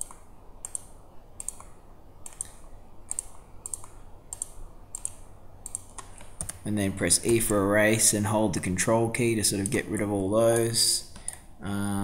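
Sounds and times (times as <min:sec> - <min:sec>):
computer mouse clicking: 0:00.0 - 0:07.6, 0:10.5 - 0:11.4.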